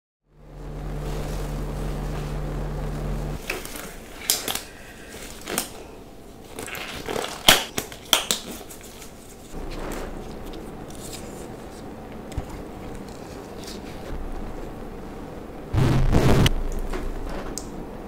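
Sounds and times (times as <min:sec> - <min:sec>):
steady low hum: 0:00.3 - 0:06.4, 0:09.5 - 0:18.0
rubber gloves stretching and snapping: 0:06.5 - 0:09.2.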